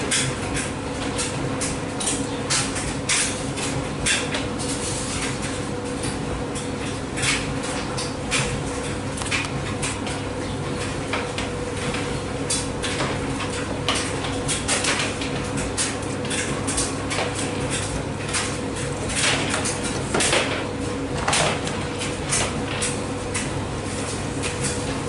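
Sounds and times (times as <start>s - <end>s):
washing machine hum: 0.0s - 25.0s.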